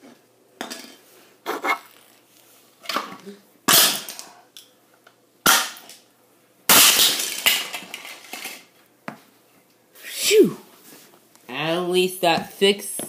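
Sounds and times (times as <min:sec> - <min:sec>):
plastic pieces clattering: 0:06.8 - 0:08.7.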